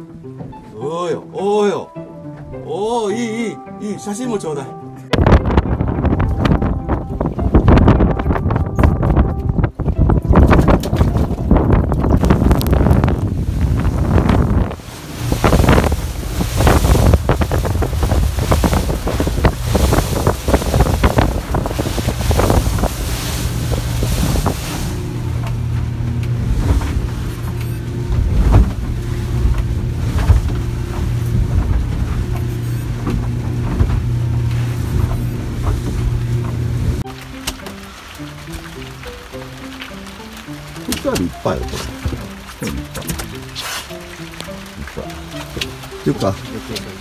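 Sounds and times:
low engine drone: 4.7s - 47.0s
wind buffeting microphone: 5.1s - 37.1s
sharp thumps: 14.2s - 37.7s.

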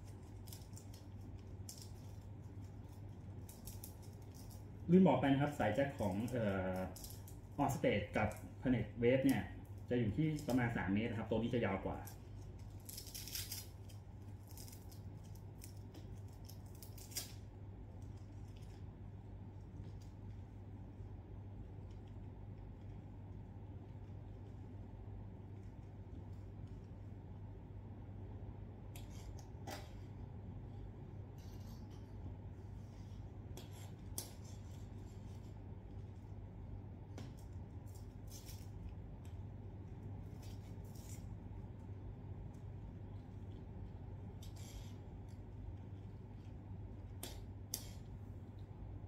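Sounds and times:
low steady hum: 0.0s - 49.0s
cable rustling and scraping: 29.0s - 36.4s, 37.2s - 48.1s.

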